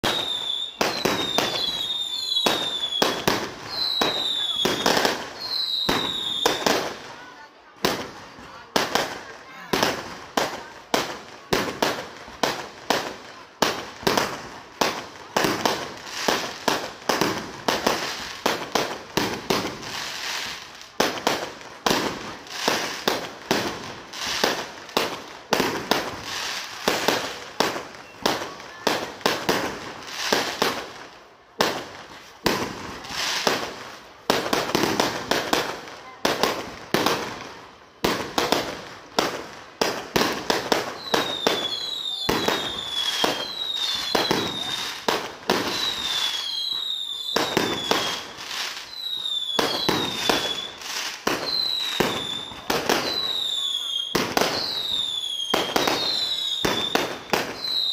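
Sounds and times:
falling firework whistles: 0.0 - 7.0, 25.6 - 30.9, 40.2 - 57.9
fireworks bursting: 0.0 - 57.9.

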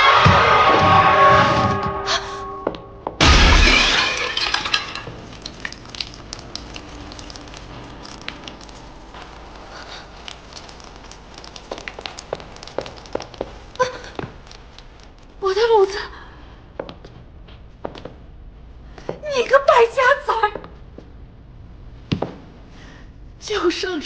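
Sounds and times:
ceramic jar smashing: 3.2 - 5.8.

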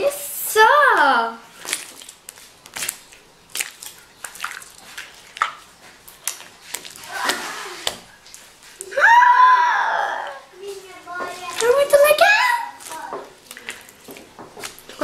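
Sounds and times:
slime wet clicks and pops: 1.6 - 4.8
child exclaiming: 8.8 - 13.2.

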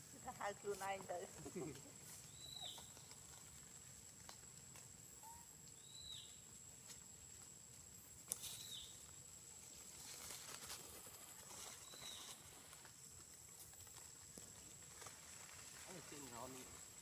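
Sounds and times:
rustling in dry leaves: 0.0 - 17.0
bird chirping: 2.2 - 3.2, 5.2 - 6.4, 8.4 - 9.0, 11.6 - 12.5.

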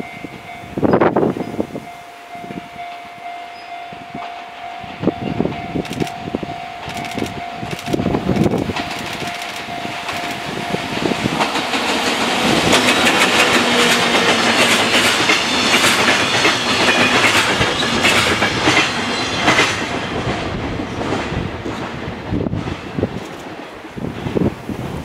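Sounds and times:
freight train passing: 0.0 - 25.0
wheels clicking over rail joints: 6.9 - 10.5.

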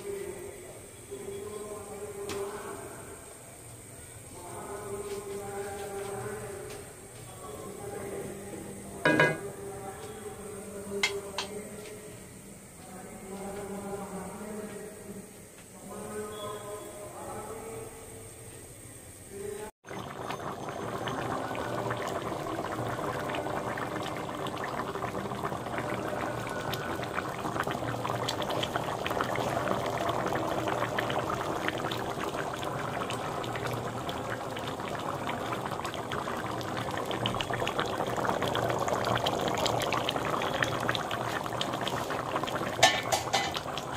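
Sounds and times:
thick curry bubbling: 19.8 - 43.9.

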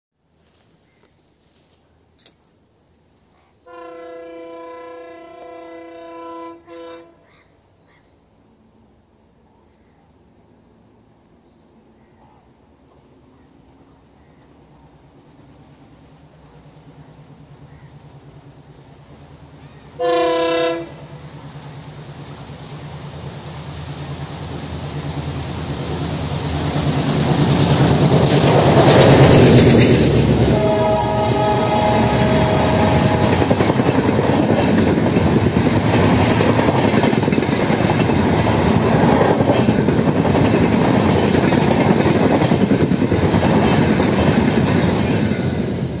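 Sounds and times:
train horn blast: 3.6 - 7.3, 20.0 - 21.3, 30.2 - 34.8
train rumble: 12.7 - 46.0
wheels clacking over rail joints: 32.1 - 45.8.

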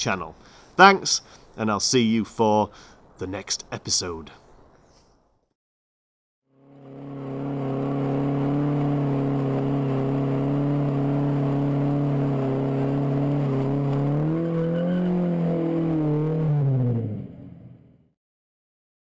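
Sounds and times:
car engine at high revs: 6.6 - 17.9
wheels spinning: 6.7 - 17.3.

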